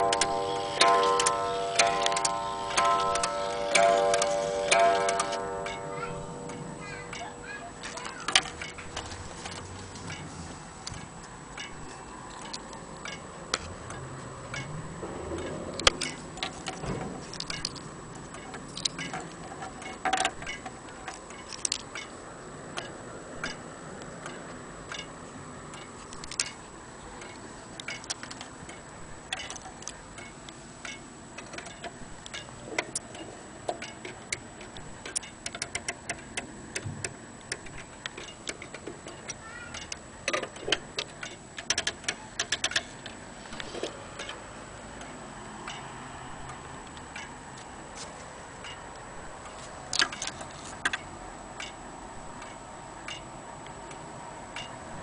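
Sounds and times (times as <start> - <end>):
wall clock ticking: 0.0 - 10.3, 17.4 - 47.6.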